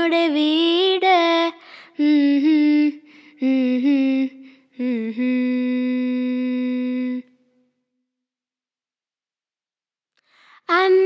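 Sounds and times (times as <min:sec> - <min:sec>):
girl humming a melody: 0:02.0 - 0:07.4.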